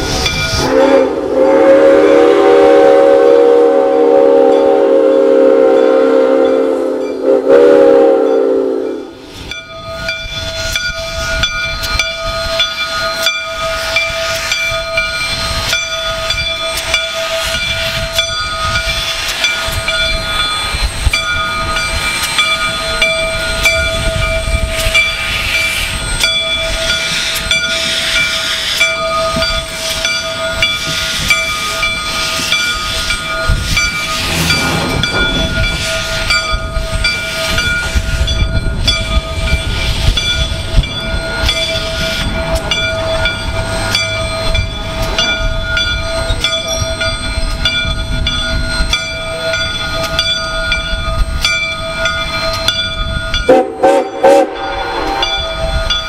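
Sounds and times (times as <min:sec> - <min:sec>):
steam whistle blast: 0:00.5 - 0:09.2, 0:34.1 - 0:36.4, 0:53.5 - 0:55.9
steady high tones: 0:09.0 - 0:56.0
train wheels clattering on rails: 0:09.2 - 0:56.0.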